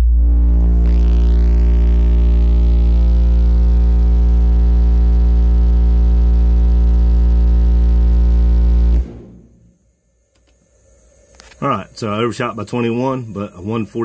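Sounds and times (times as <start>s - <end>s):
deep buzzy subwoofer bass tone: 0.0s - 9.8s.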